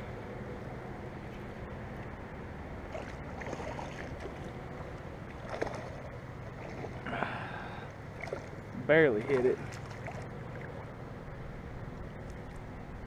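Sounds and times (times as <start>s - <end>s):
light wind: 0.0s - 13.0s
water rushing: 2.5s - 11.1s.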